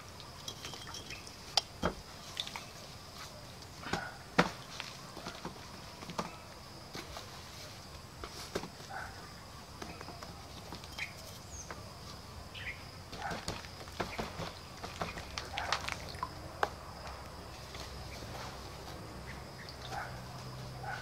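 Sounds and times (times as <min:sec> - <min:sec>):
bird chirps: 0:12.5 - 0:12.9.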